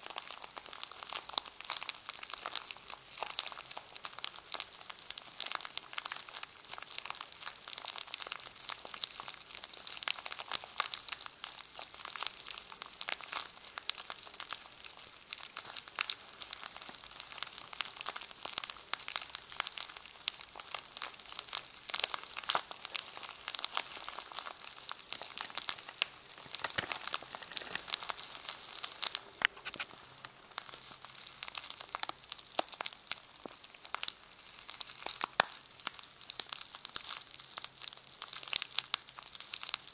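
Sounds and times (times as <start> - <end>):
plastic packaging crinkling: 20.6 - 39.9.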